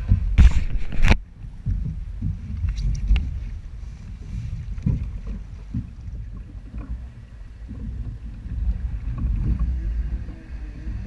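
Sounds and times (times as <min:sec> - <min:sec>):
water lapping against plastic hulls: 0:00.0 - 0:11.0
wind rumbling on microphone: 0:00.0 - 0:11.0.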